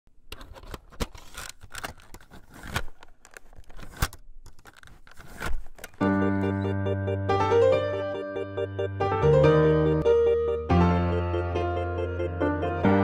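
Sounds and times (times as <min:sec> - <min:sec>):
keyboard music low notes: 0:06.0 - 0:13.0.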